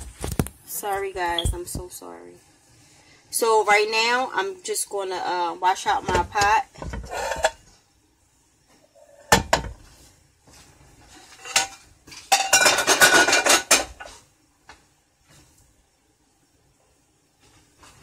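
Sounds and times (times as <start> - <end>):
pots and pans clattering: 5.9 - 7.7, 9.0 - 9.9, 11.1 - 14.2.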